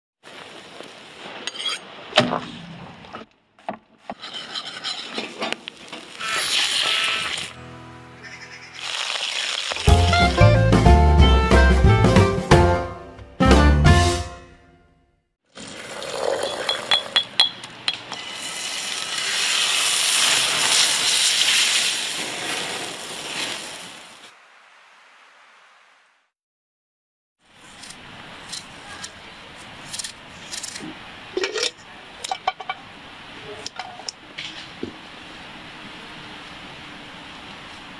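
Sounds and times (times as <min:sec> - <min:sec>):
crackles: 0:05.2 - 0:07.6, 0:08.8 - 0:10.0, 0:18.2 - 0:26.1
meat sizzling on a grill: 0:05.8 - 0:07.5, 0:08.6 - 0:10.0, 0:18.2 - 0:24.3
utensil clinking on cooking pot: 0:16.4 - 0:18.3.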